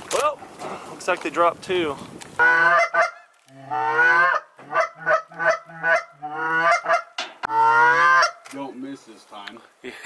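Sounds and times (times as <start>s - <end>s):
goose call honks and clucks: 2.4s - 8.5s.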